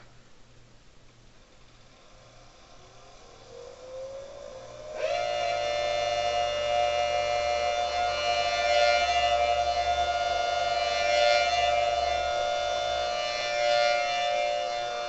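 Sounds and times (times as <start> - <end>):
siren tone: 5.0 - 15.0.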